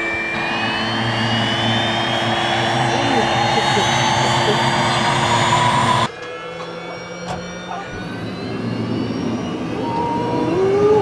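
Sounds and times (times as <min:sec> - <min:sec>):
engine whine: 0:00.0 - 0:11.0
helicopter engines running: 0:00.0 - 0:11.0.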